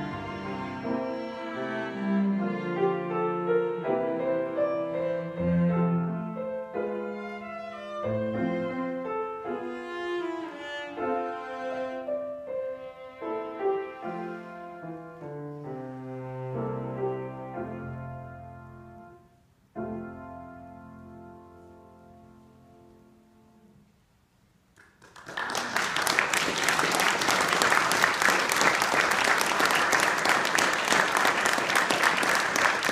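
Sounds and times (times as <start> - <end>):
bowed strings: 0.0 - 18.6
piano: 0.0 - 32.9.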